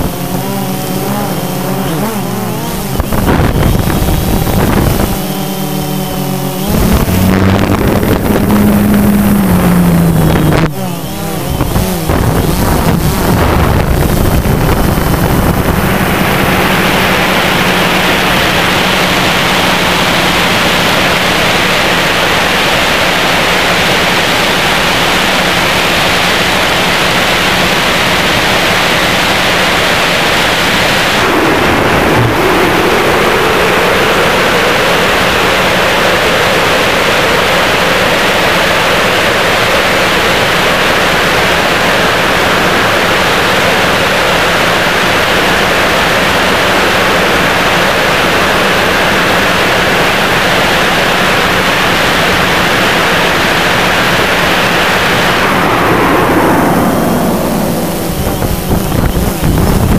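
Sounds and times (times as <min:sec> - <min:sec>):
drone propellers rushing hiss: 0:00.0 - 0:59.9
mid-pitched tone: 0:00.1 - 0:19.2.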